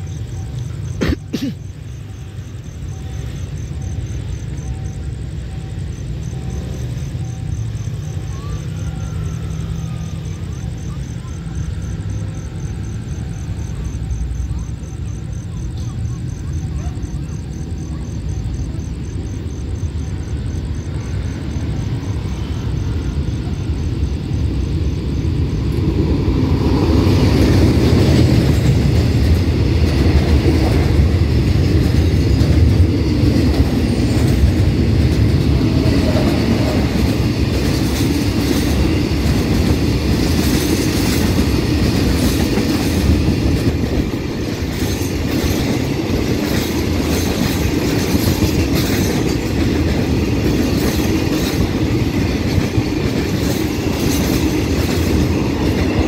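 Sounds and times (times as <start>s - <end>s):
freight train rumbling past: 0.0s - 56.0s
wheels clacking over rail joints: 25.6s - 56.0s.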